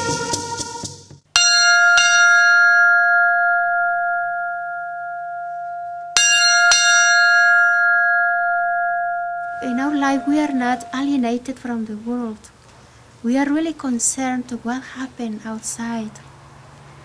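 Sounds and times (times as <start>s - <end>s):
small bell ringing: 1.4s - 11.3s.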